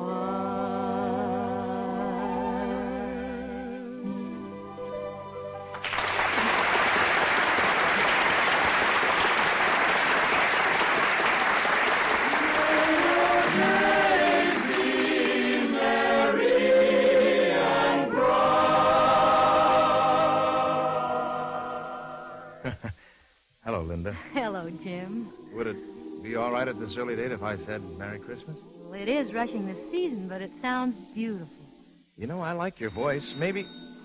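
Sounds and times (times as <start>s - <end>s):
orchestra and choir music: 0.0s - 6.1s, 11.8s - 22.7s, 24.4s - 34.0s
audience applause: 5.7s - 16.3s.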